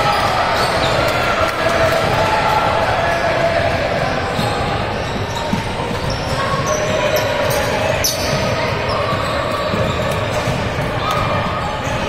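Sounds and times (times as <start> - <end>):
sneaker squeaks: 0.0 - 1.3, 4.3 - 12.0
chatter of spectators: 0.0 - 12.0
basketball bouncing on court: 8.2 - 12.0.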